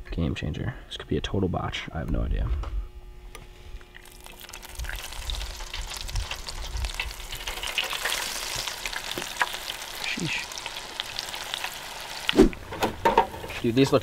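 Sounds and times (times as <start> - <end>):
oil popping: 3.9 - 13.5
food sizzling in hot oil: 3.9 - 14.0.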